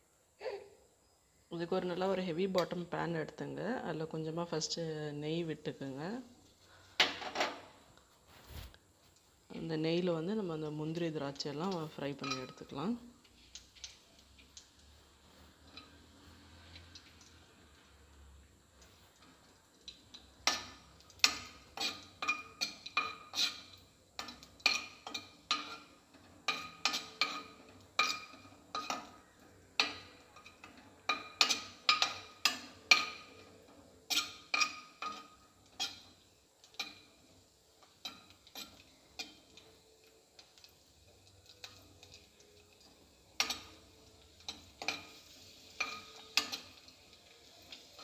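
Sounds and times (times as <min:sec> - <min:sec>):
spoon scraping metal pan: 0:10.9 - 0:14.6, 0:19.9 - 0:37.2, 0:37.8 - 0:39.8, 0:40.4 - 0:48.0.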